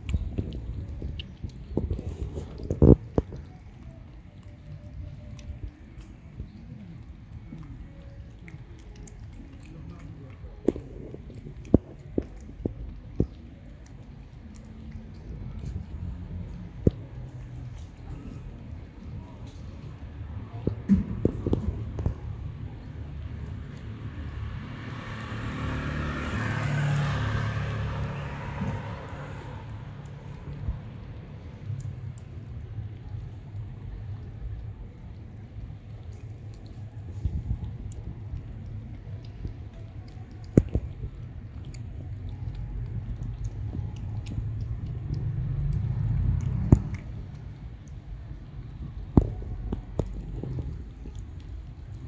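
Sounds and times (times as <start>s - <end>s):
cats chewing and lapping food: 0.0s - 52.0s
low rumble: 0.0s - 52.0s
car passing by: 23.2s - 31.6s.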